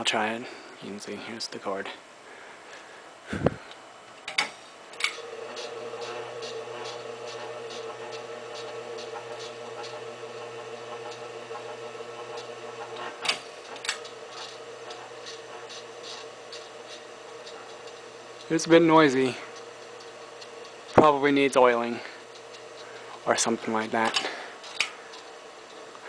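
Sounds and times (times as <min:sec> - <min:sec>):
fan motor humming: 0:00.0 - 0:26.0.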